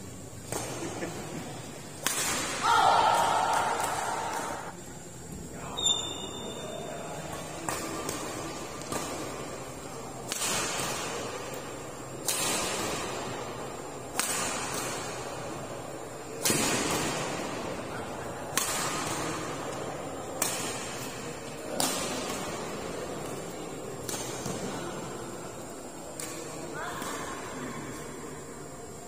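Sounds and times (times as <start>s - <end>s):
racket hitting shuttlecock: 2.0s - 4.7s, 7.3s - 9.6s, 10.2s - 13.4s, 14.0s - 15.5s, 16.4s - 17.6s, 18.5s - 19.7s, 20.3s - 24.7s.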